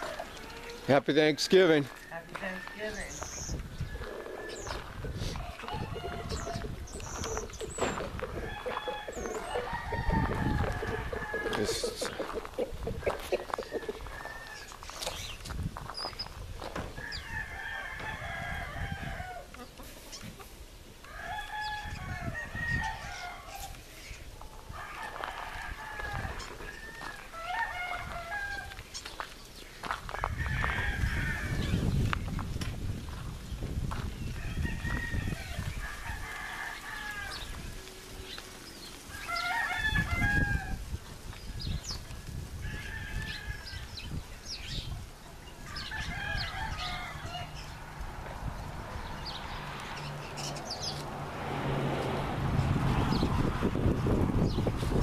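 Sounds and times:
rooster crowing: 3.9s - 14.8s, 17.0s - 19.6s, 21.0s - 23.8s, 24.7s - 28.8s, 30.1s - 31.9s, 34.4s - 37.6s, 39.1s - 40.8s, 42.6s - 44.0s, 45.6s - 48.0s
hens clucking: 4.0s - 14.4s.

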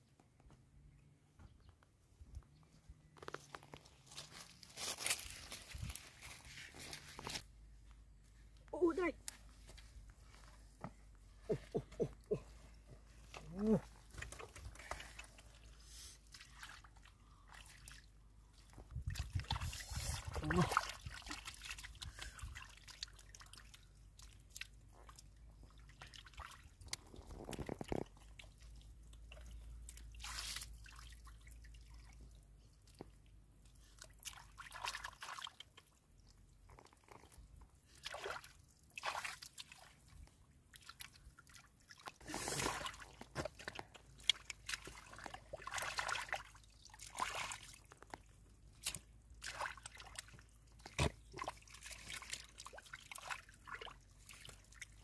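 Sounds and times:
hands splashing in puddle: 19.1s - 31.5s, 41.9s - 55.0s
water dripping: 20.4s - 33.2s.

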